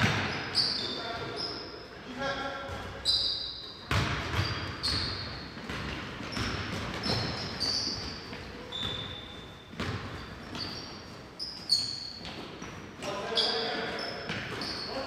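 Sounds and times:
sneakers squeaking: 0.0 - 15.0
basketball bouncing on wooden floor: 3.9 - 10.9.

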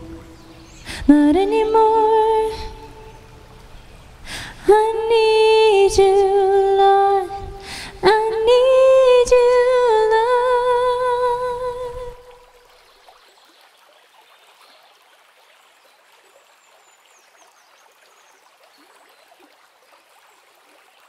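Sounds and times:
woman singing wordless notes: 0.0 - 3.6, 4.4 - 12.5.

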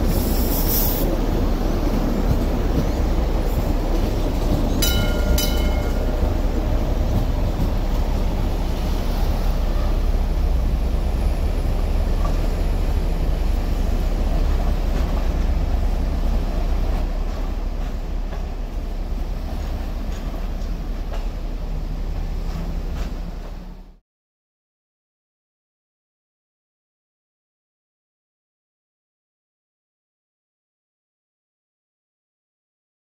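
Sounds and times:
light rail train rumbling past: 0.0 - 24.0.

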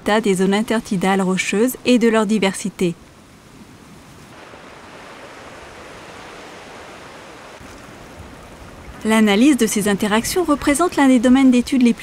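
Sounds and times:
waves on rocky shore: 3.2 - 12.0.

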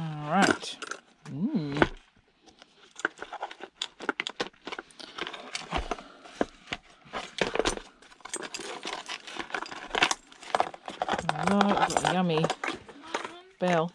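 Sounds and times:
scrap metal parts clinking: 0.3 - 1.1, 7.2 - 13.9.

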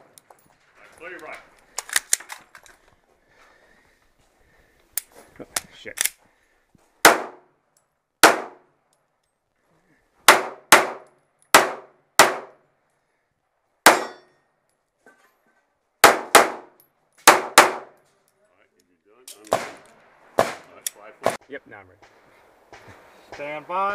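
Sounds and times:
pistol shots: 7.0 - 7.5, 8.2 - 8.7, 10.3 - 12.6, 13.8 - 14.2, 16.0 - 17.9, 19.4 - 20.7.

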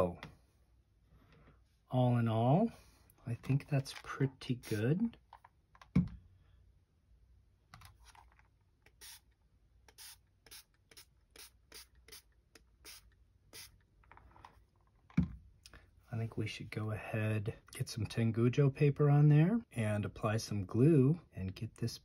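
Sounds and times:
trigger spray bottle spraying: 4.6 - 4.8, 8.9 - 9.3, 9.9 - 13.8.

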